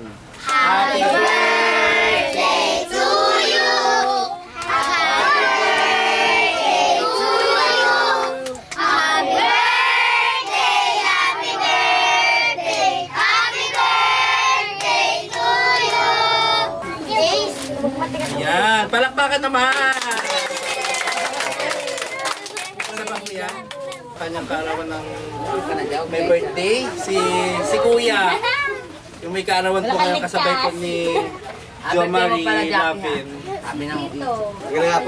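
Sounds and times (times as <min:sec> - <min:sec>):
hands clapping: 0:19.7 - 0:24.1.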